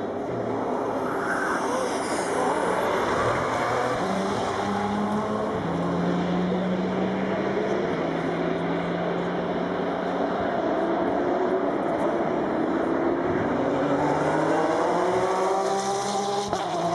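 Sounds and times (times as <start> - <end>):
race car engine accelerating: 0.4 - 16.9.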